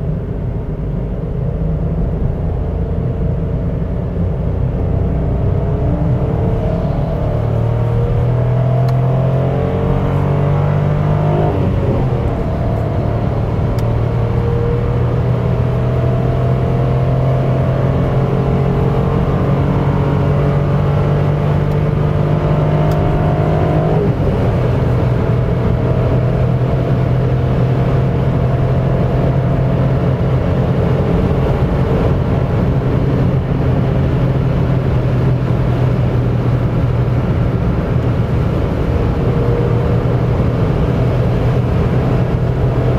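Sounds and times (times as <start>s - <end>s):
car engine under full load: 0.0s - 42.9s.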